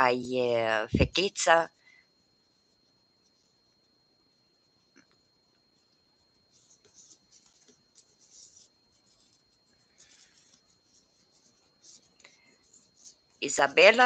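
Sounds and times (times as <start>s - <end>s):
yarn rustling with crochet hook: 6.5s - 14.0s.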